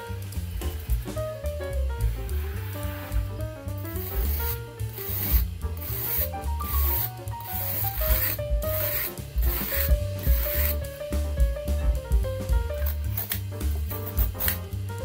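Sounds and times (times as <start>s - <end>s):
background music: 0.0s - 15.0s
vegetables rubbed by hand: 2.0s - 10.9s.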